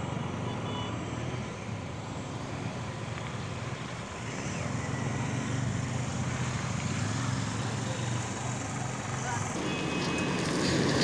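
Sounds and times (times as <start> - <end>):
motor engine droning: 4.2 - 11.0.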